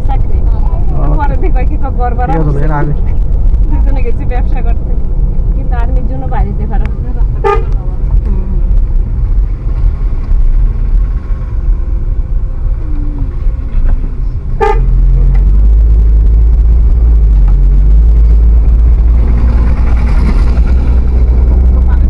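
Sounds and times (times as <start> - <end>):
vehicle engine low rumble: 0.0 - 22.0
short horn toot: 14.6 - 15.0.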